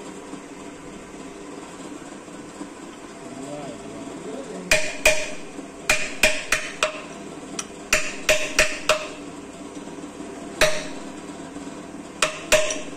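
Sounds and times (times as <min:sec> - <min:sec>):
hammer striking metal: 0:04.7 - 0:07.1, 0:07.9 - 0:09.2, 0:10.6 - 0:11.1, 0:12.2 - 0:12.9.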